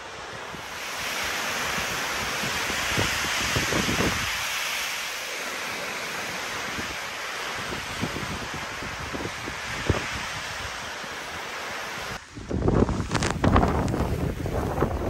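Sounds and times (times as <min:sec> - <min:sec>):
wind rushing through trees: 0:00.0 - 0:15.0
wind buffeting microphone: 0:01.7 - 0:04.5, 0:07.6 - 0:10.8, 0:12.1 - 0:15.0.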